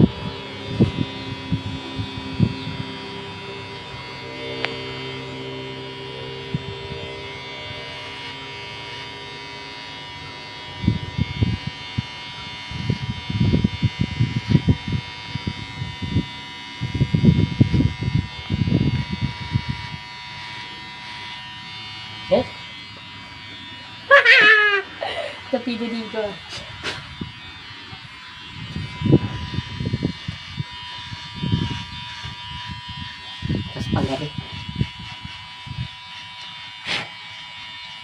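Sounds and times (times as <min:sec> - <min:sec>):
electric hair clipper buzzing: 0:00.0 - 0:38.0
rough clipper bursts: 0:19.2 - 0:38.0.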